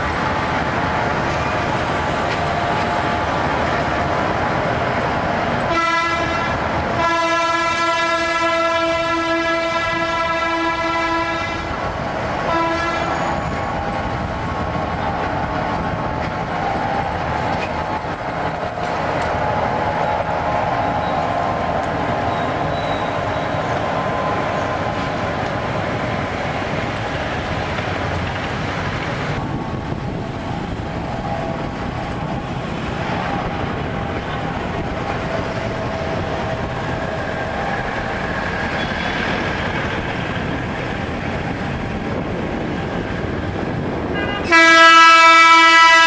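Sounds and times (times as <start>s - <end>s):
railbus running on track: 0.0s - 46.0s
road traffic: 0.0s - 46.0s
railbus horn blast: 5.6s - 11.8s, 12.4s - 13.6s, 44.1s - 46.0s.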